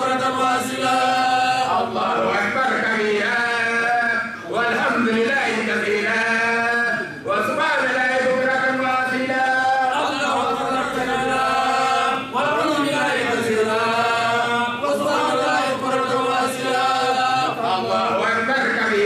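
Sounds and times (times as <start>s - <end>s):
person chanting: 0.0s - 19.0s.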